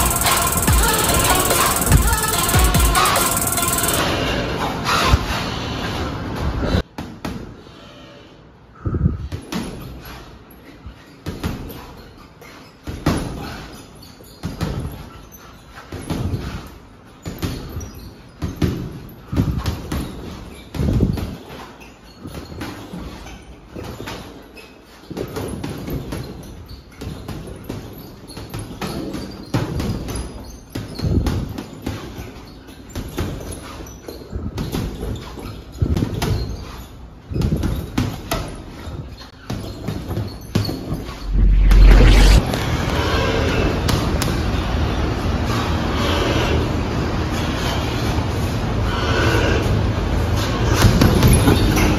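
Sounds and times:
gloves punching heavy bag: 0.0 - 4.0, 37.3 - 40.9.

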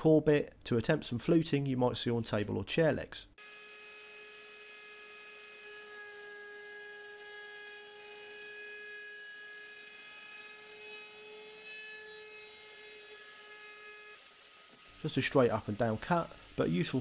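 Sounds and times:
router whining cutting wood: 3.4 - 17.0.

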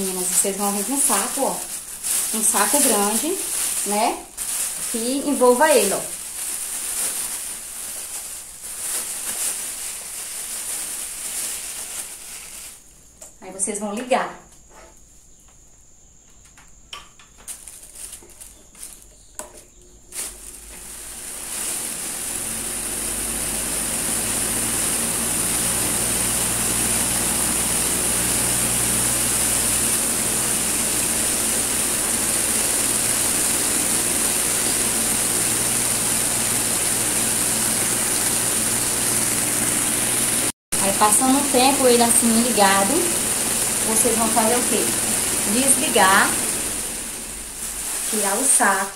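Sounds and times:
knocks and plastic rustles: 16.4 - 21.8
fan air rushing against plastic: 17.4 - 48.9
low motor hum: 20.4 - 48.1.

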